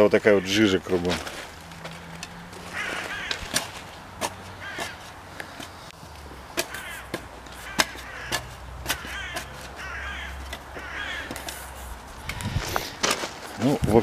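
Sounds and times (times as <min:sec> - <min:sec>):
birds harsh wavering calls: 0:02.6 - 0:12.6.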